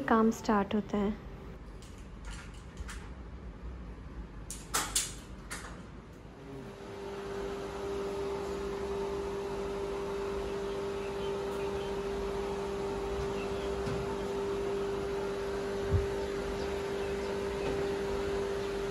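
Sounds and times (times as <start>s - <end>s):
electric motor humming: 6.4s - 18.9s.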